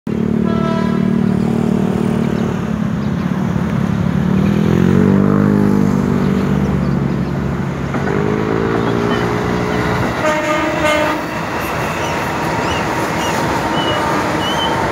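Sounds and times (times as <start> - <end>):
electric train whining: 8.0 - 14.9.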